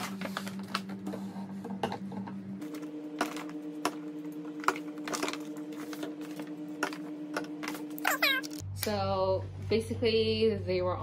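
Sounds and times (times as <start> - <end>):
paper bag rustling: 0.0 - 1.0.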